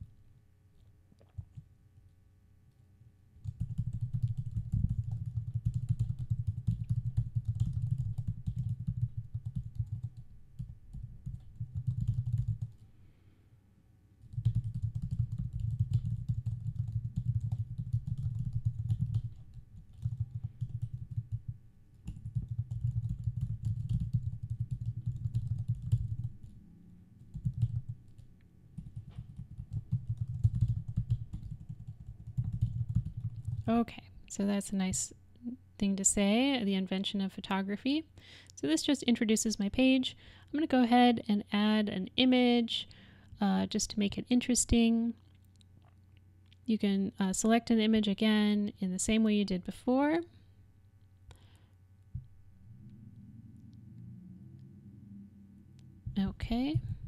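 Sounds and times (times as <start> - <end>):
typing on a keyboard: 3.4 - 12.8, 14.2 - 26.6, 27.3 - 33.7.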